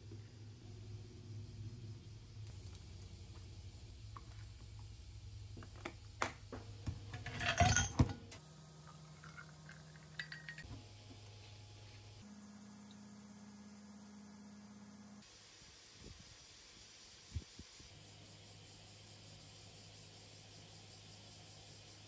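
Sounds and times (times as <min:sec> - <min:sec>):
glass clinking on metal counter: 0:07.1 - 0:08.4, 0:09.0 - 0:10.7
milk pouring into glass: 0:08.8 - 0:10.6.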